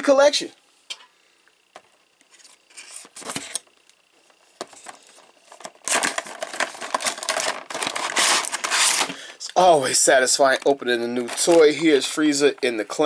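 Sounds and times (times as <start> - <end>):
plastic crinkling and sliding: 4.7 - 9.2, 11.2 - 12.0.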